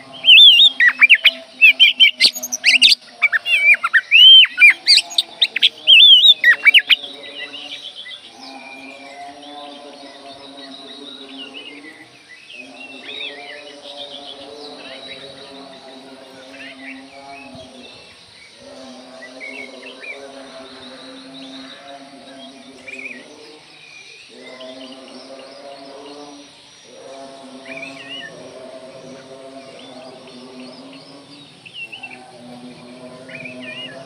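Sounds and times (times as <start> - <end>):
bird whistled chirps: 0.0 - 7.0.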